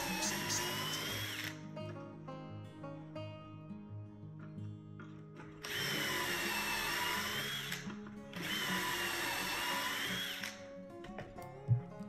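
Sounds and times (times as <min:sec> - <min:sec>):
cordless drill whining into wood: 0:00.0 - 0:01.6, 0:05.6 - 0:10.7.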